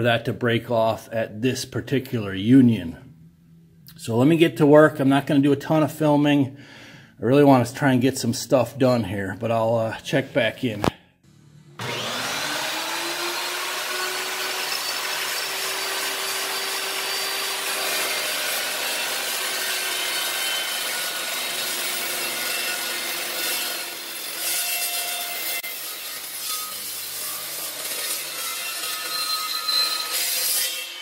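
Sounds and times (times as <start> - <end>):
chop saw motor whine: 11.3 - 23.0
saw blade cutting steel: 11.8 - 31.0.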